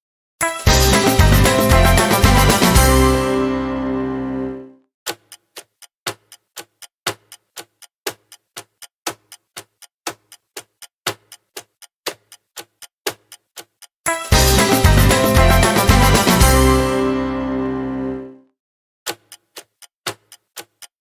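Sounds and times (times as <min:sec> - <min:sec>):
countdown timer ticking: 0:00.4 - 0:18.4
loud music with a beat: 0:00.6 - 0:03.3, 0:14.1 - 0:17.1.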